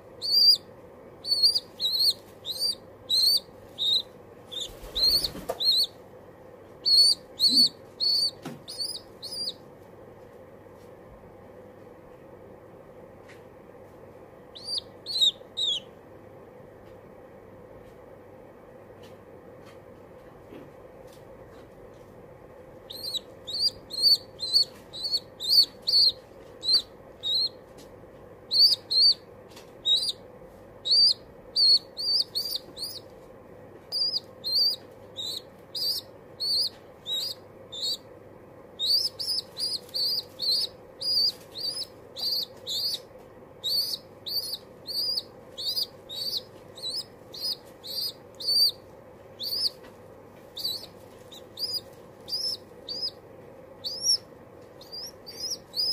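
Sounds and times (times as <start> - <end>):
pigeon squab peeping: 0.0 - 6.0, 6.7 - 9.6, 14.5 - 16.0, 22.8 - 55.9.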